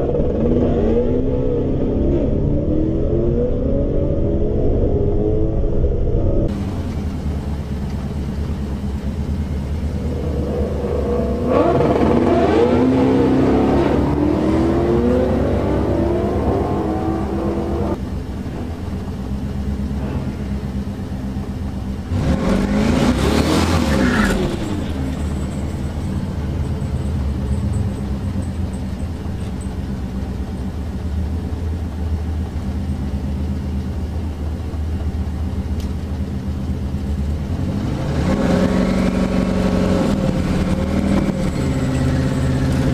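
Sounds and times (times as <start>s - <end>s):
cars revving: 0.0s - 42.9s
car engine idling: 6.5s - 38.0s.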